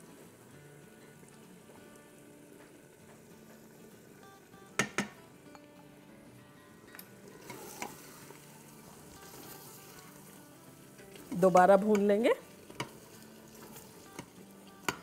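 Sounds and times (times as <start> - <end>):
soft background music: 0.0 - 15.0
soft sizzle: 0.0 - 15.0
utensil knocking on metal pot: 4.8 - 5.2
stirring with light clinks: 11.0 - 15.0.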